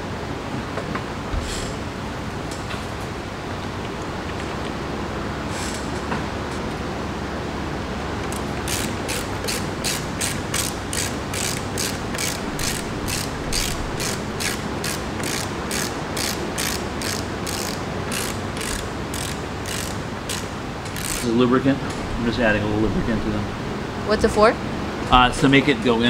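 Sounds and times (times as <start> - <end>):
ratchet wrench clicking: 8.3 - 21.4.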